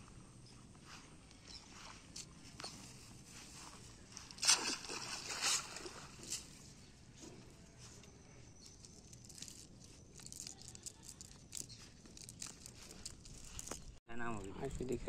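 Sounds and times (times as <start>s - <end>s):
net rustling: 2.8s - 6.8s, 8.6s - 14.0s
water splash: 4.3s - 6.2s.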